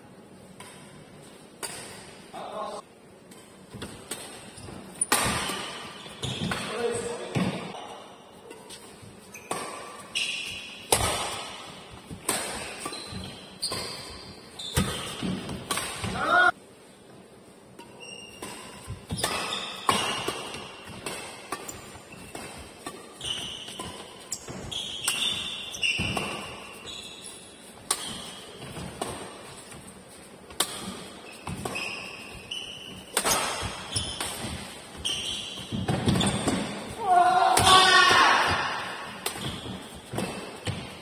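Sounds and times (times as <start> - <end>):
court shoes squeaking: 3.3 - 16.5, 17.4 - 41.0
racket striking shuttlecock: 3.7 - 6.7, 9.5 - 16.2, 17.8 - 26.8, 27.8 - 29.5, 30.5 - 40.9.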